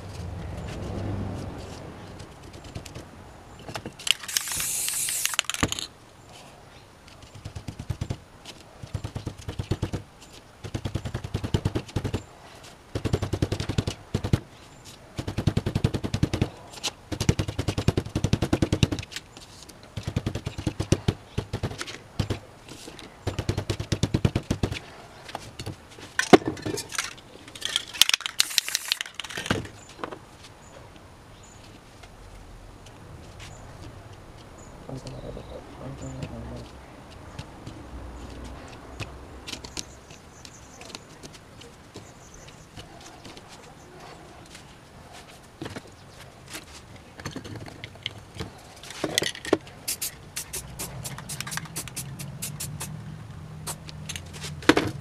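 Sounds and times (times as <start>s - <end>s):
aerosol spray can hissing: 4.2s - 5.5s, 49.9s - 52.9s.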